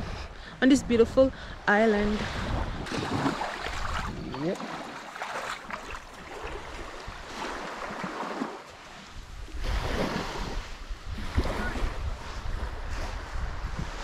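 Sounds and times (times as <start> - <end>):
wind buffeting microphone: 0.0 - 4.6, 9.1 - 14.0
small waves washing onto sand: 1.9 - 14.0.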